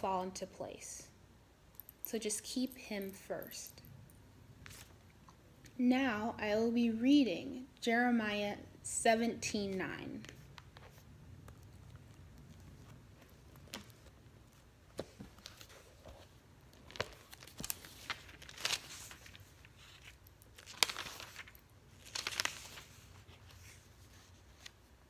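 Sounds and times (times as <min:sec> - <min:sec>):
book pages turning: 0:04.6 - 0:05.0, 0:10.2 - 0:24.9.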